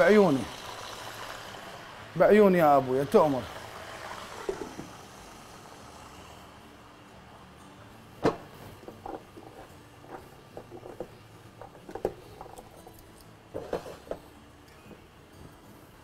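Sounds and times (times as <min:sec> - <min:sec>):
dishes knocking and clattering: 0:08.2 - 0:12.6.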